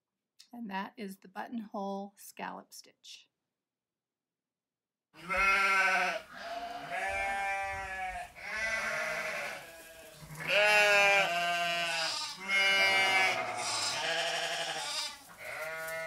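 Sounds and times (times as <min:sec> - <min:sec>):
sheep bleating: 0:05.2 - 0:16.0.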